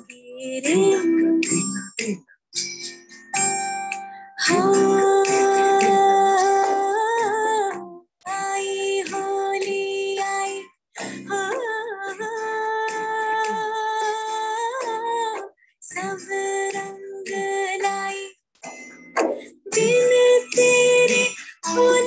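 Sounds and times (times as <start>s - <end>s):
woman singing film song: 0.0s - 2.2s, 4.4s - 18.4s, 19.7s - 22.0s
song accompaniment: 0.0s - 7.9s, 18.6s - 22.0s.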